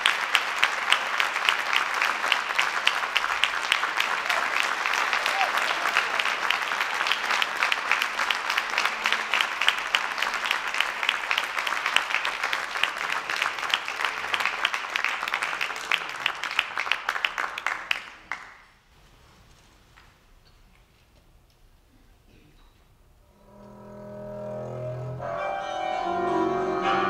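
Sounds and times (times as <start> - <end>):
audience applauding: 0.0 - 18.8.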